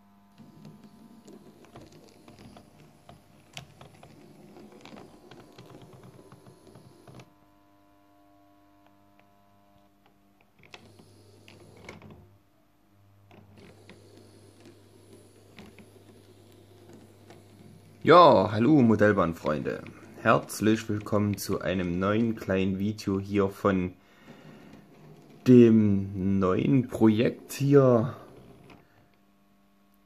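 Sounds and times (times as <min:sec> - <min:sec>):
low steady hum: 0:00.0 - 0:30.0
model train wheels clicking: 0:00.4 - 0:07.2, 0:13.3 - 0:25.8.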